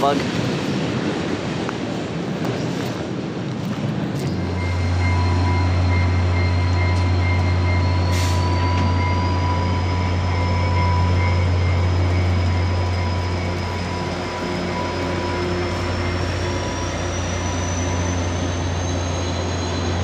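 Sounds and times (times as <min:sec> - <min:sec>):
train wheels rumbling on rails: 0:00.0 - 0:20.0
thin whining tones: 0:04.3 - 0:20.0.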